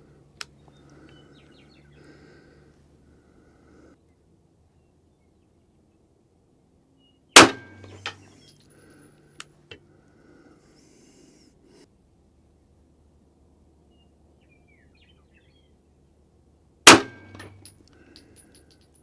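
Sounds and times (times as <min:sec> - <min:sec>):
pistol shot: 0:07.4 - 0:08.0, 0:16.9 - 0:17.6.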